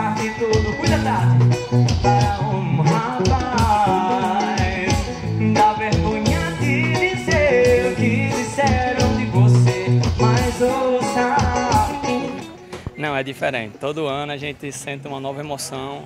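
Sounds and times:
man singing: 0.0s - 12.8s
electric guitar: 0.0s - 13.0s
drums: 0.0s - 13.2s.

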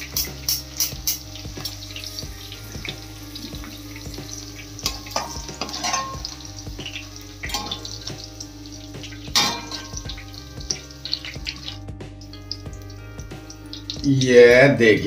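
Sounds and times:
metal utensils scraping pan: 0.0s - 1.8s, 4.8s - 6.4s, 7.4s - 8.0s, 9.3s - 10.2s
okra frying in hot oil: 0.0s - 15.0s.

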